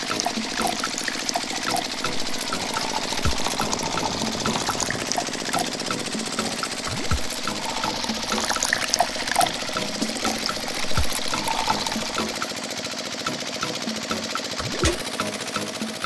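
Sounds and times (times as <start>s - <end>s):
water pouring and splashing: 0.0s - 12.4s, 14.6s - 15.0s
small electric motor running: 0.0s - 12.8s.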